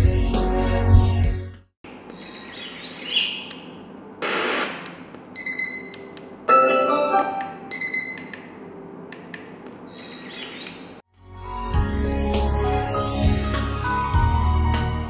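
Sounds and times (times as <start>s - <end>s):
brief melody: 11.9s - 15.0s.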